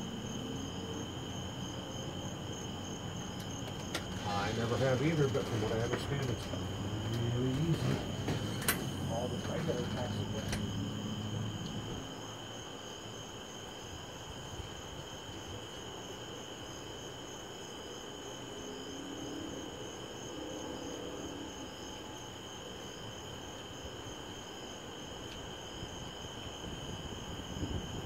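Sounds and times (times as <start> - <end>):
crickets chirping: 0.0 - 28.0.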